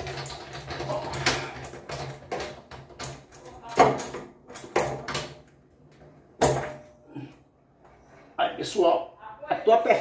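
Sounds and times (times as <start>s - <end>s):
plastic drain fitting scraping and clicking: 0.0s - 5.3s.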